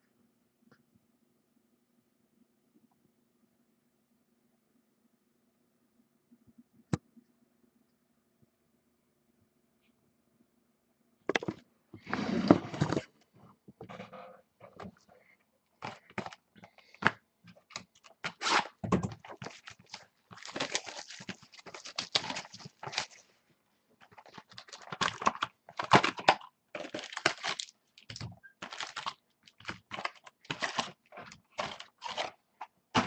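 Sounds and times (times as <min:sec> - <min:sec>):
plastic shrink-wrap tearing and crinkling: 0:17.7 - 0:23.2, 0:24.0 - 0:32.4.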